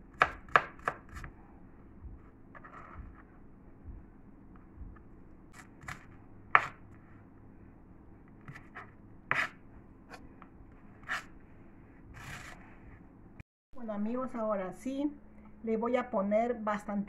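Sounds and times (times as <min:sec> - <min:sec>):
knife chopping on plastic board: 0:00.1 - 0:01.3, 0:05.6 - 0:06.8, 0:08.4 - 0:09.6.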